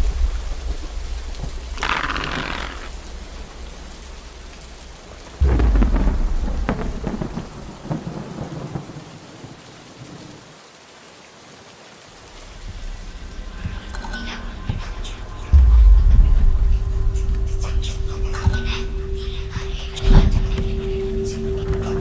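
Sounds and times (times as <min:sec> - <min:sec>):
steady rain: 0:00.0 - 0:22.0
thunder clap rumbling: 0:05.4 - 0:09.2, 0:15.5 - 0:22.0.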